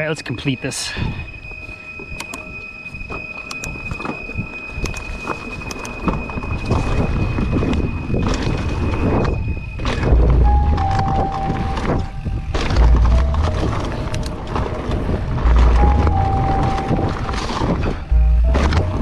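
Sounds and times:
thin high whine: 0.0 - 19.0
wind rumble: 0.0 - 19.0
bike rattling clicks: 4.8 - 6.1.

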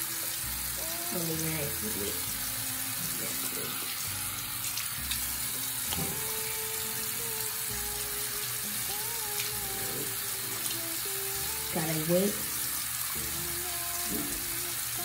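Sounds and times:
tap water running: 0.0 - 15.0
hands splashing water: 4.5 - 6.4.

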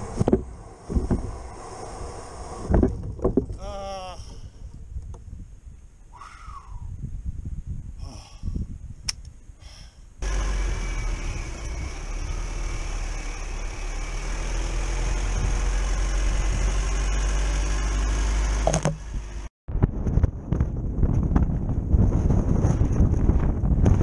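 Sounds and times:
engine and tyre rumble: 0.0 - 3.6, 10.2 - 24.0
wind buffeting microphone: 0.0 - 9.7, 19.1 - 24.0.

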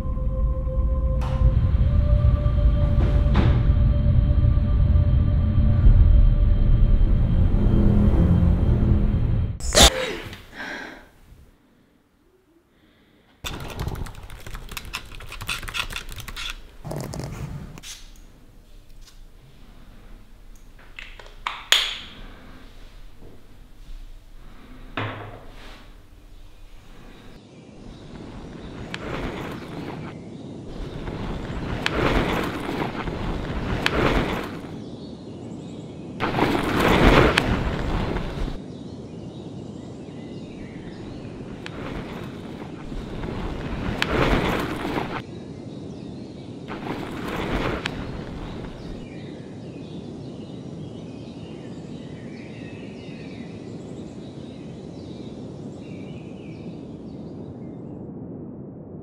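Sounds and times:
low rush of noise: 0.0 - 13.2, 18.2 - 50.8
birds chirping: 18.2 - 58.2
rug scraping on cobblestones: 25.5 - 34.8, 36.2 - 38.6, 41.4 - 45.2, 46.7 - 49.1.

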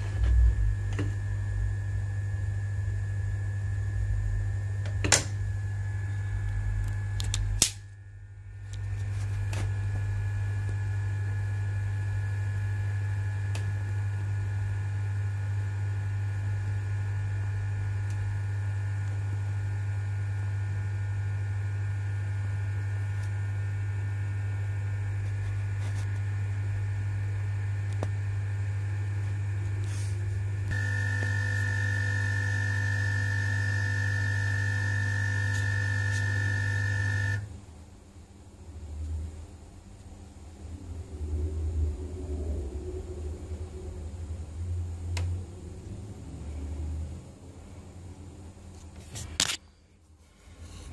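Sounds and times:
electrical mains hum: 0.0 - 50.9
faint high whine: 0.1 - 37.5.

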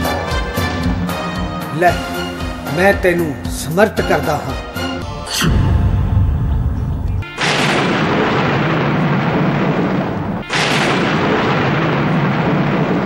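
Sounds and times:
thunder-like booms: 5.0 - 13.0.

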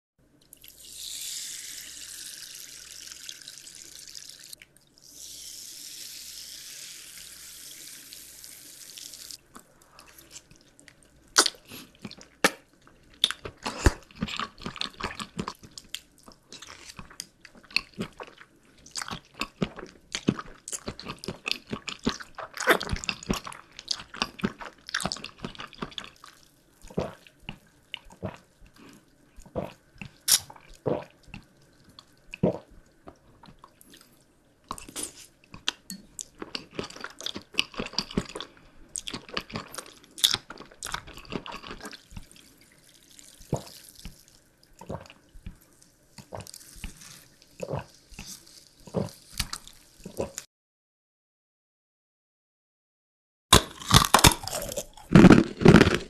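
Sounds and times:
candy crunching close up: 46.2 - 50.4, 53.5 - 56.0.

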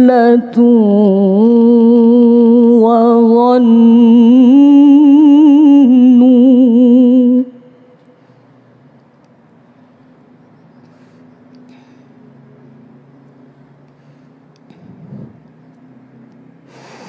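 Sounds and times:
woman reciting melodically: 0.0 - 7.8.

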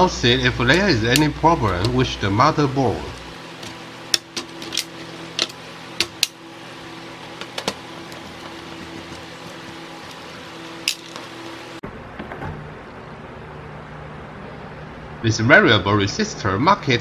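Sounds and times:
clicks of wire connectors handled: 3.6 - 6.4.

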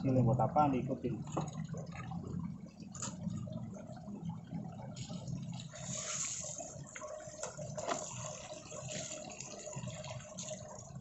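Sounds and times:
hose water splashing on paving: 4.9 - 11.0.

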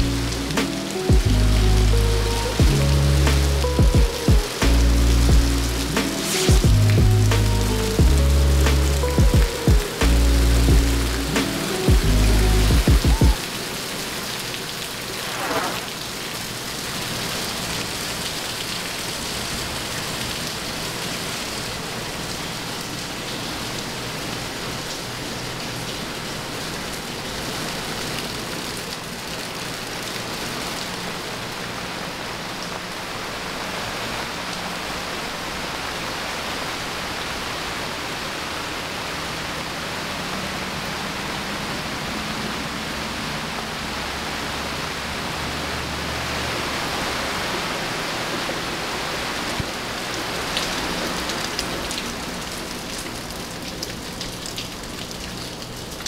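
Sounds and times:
steady rain falling: 0.0 - 56.0
falling whoosh: 15.0 - 16.0.

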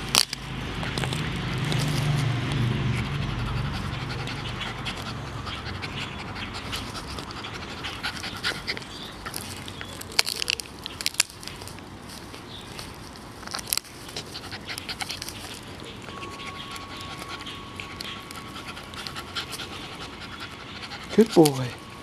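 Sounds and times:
dog gnawing wooden stick: 0.0 - 22.0
low rumbling hum: 0.0 - 22.0
dog panting: 0.8 - 10.0, 14.1 - 22.0.

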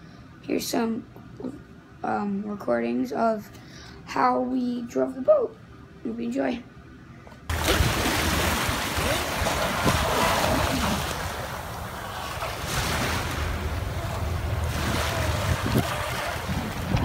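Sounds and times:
small waves lapping: 7.5 - 17.0
wind buffeting microphone: 7.5 - 17.0.

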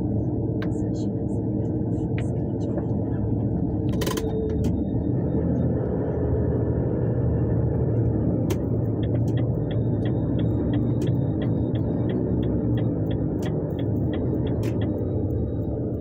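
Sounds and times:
vehicle engine and road rumble: 0.0 - 16.0
turn signal ticking: 8.0 - 16.0.

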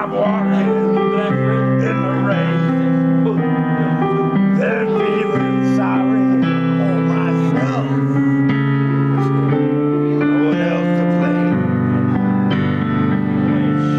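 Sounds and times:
guitar chords: 0.0 - 13.9
person singing: 0.0 - 13.9.

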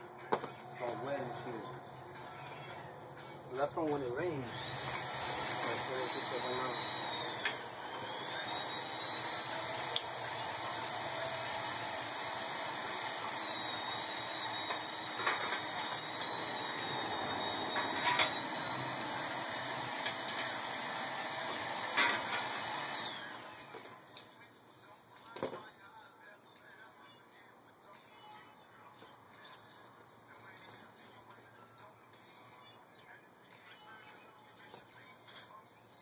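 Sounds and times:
hissing drone with high whistle: 3.5 - 23.5.

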